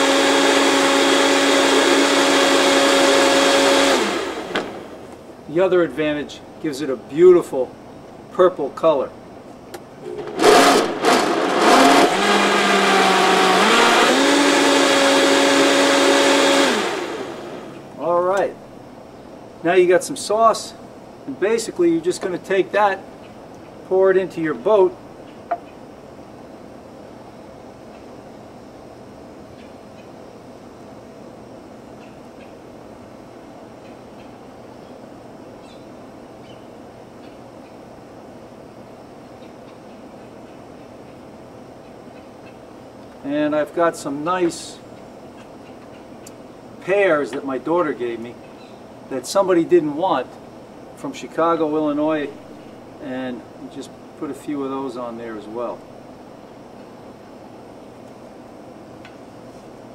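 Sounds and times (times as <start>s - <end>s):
blender motor running: 0.0s - 5.0s, 10.1s - 17.8s.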